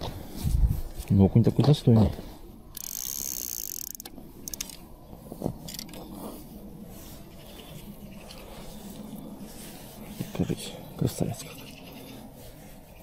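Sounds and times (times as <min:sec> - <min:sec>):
soft rubbing handling noise: 0:04.2 - 0:13.0.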